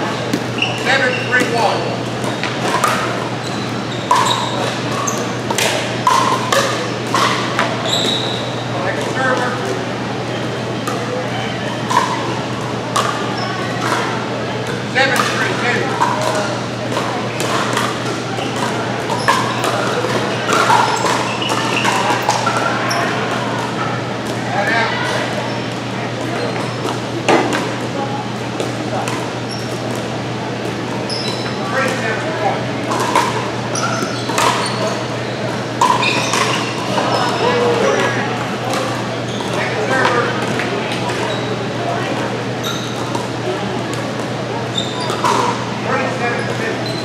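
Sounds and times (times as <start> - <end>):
voices: 0.0 - 47.0
ball bouncing on court: 0.3 - 8.4, 13.9 - 23.4, 32.8 - 37.4.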